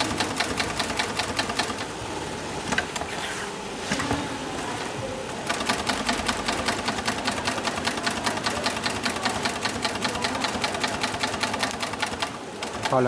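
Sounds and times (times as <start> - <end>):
sewing machine stitching: 0.0 - 1.9, 5.4 - 13.0.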